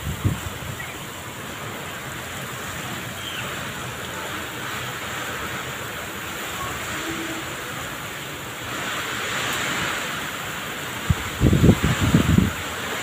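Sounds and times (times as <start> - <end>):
heavy rain pouring: 0.0 - 13.0.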